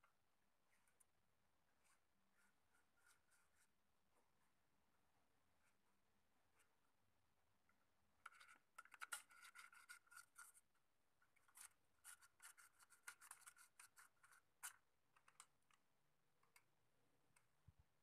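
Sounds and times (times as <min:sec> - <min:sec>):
faint scratching: 0:01.7 - 0:03.8, 0:08.2 - 0:10.7, 0:11.4 - 0:15.4.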